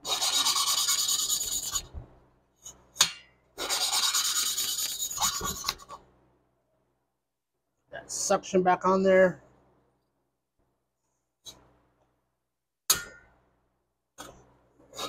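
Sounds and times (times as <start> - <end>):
valve lapping gritty rasp: 0.0 - 1.9, 3.6 - 6.0.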